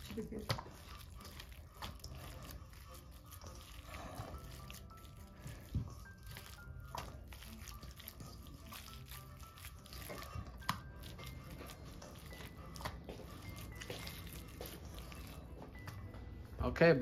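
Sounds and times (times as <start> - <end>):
hands squishing raw meat: 0.0 - 16.2
faint background music: 0.0 - 17.0.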